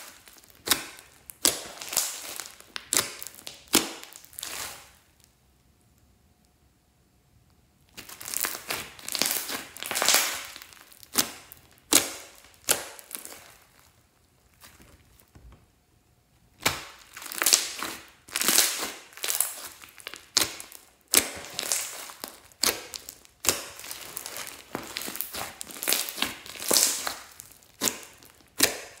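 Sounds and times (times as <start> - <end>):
slime squishing and clicking: 16.6 - 29.0.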